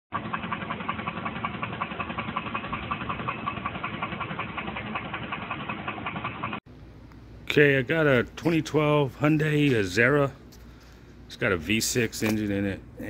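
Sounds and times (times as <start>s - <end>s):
engine running with fast knocking: 0.1s - 6.6s.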